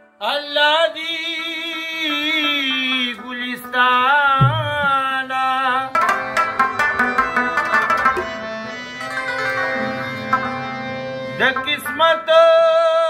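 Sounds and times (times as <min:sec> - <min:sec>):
man singing with vibrato: 0:00.1 - 0:06.1, 0:11.3 - 0:13.0
plucked rubab: 0:01.5 - 0:12.3.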